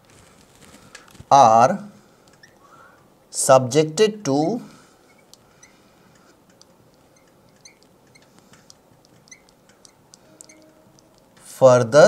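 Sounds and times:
marker pen squeaking on glass: 2.3s - 2.6s, 5.0s - 5.8s, 6.9s - 11.4s.

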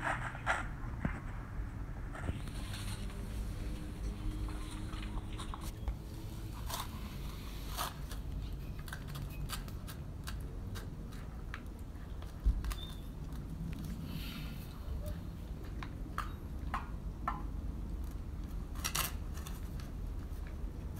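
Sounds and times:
puppies crunching dry food: 2.1s - 17.0s, 17.8s - 20.9s.

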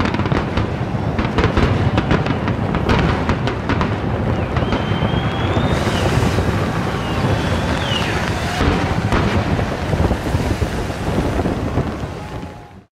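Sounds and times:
sharp firework bangs: 0.0s - 12.8s
fireworks bursting rumble: 0.0s - 12.9s
faint firework whistles: 4.1s - 12.9s.

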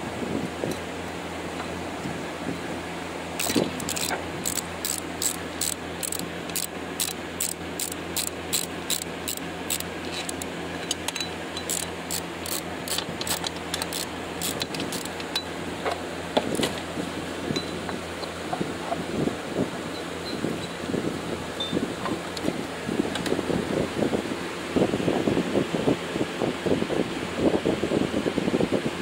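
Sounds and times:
socket ratchet clicking: 3.4s - 15.4s
metal clinks: 3.4s - 15.5s.

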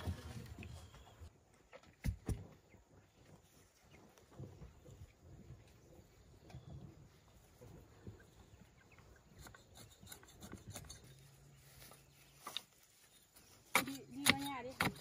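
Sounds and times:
faint taps and scrapes: 9.4s - 15.0s.

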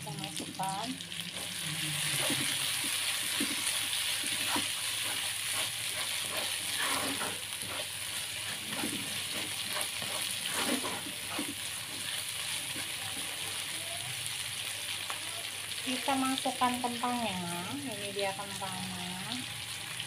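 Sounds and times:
paste sizzling in a wok: 0.0s - 20.0s
spatula scraping wok: 1.2s - 13.8s.

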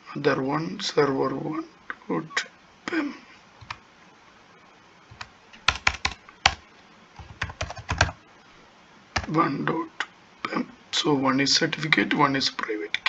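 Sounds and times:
keyboard keystrokes: 5.1s - 6.6s, 7.2s - 8.2s.

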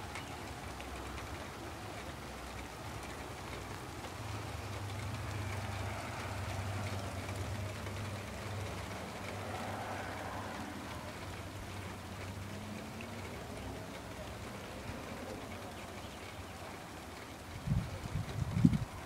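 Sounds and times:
heavy rain on pavement: 0.0s - 19.0s.

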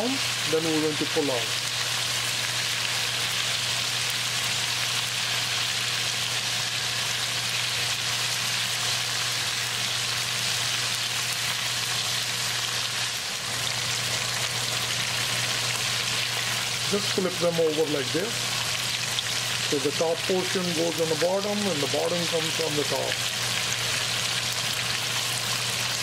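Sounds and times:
chicken deep-frying in oil: 0.0s - 26.0s.

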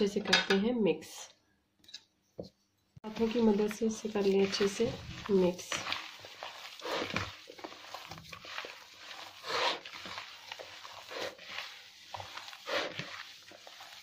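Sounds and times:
hand squishing food mixture: 3.0s - 14.0s.

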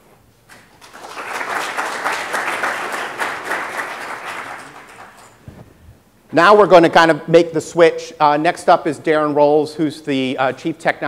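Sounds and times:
audience applauding: 0.6s - 5.4s.

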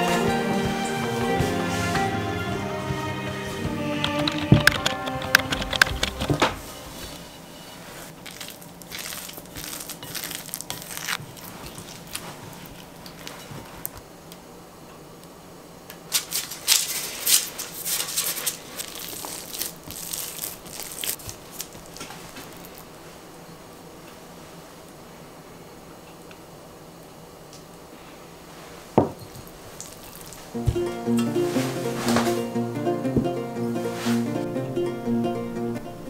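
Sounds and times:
cloth rustling: 0.0s - 14.0s, 16.1s - 23.3s, 28.4s - 34.5s
baking paper crinkling: 4.9s - 14.0s, 16.1s - 23.1s, 29.4s - 30.6s.

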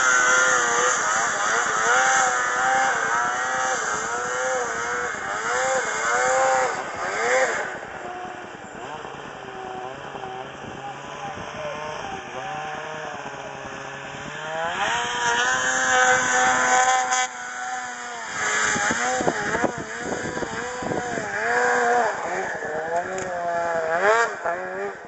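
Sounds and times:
snowmobile engines revving: 0.0s - 25.0s.

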